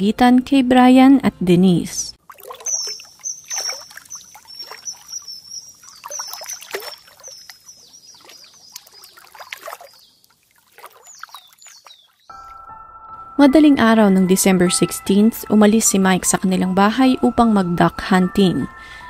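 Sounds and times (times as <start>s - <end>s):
water lapping and splashing: 2.2s - 12.7s
birds chirping: 2.4s - 12.8s.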